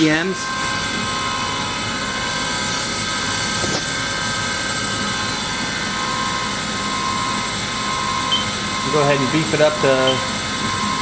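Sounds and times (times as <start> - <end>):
machine spindle running: 0.0 - 11.0.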